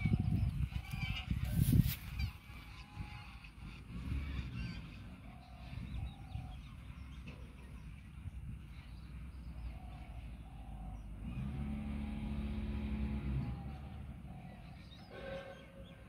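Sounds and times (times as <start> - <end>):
passing motor vehicle engine hum: 0.0 - 16.0
short bird calls: 13.4 - 16.0.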